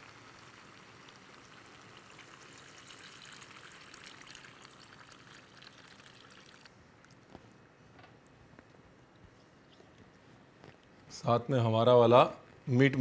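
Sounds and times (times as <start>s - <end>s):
water pouring into a pot: 0.0s - 6.8s.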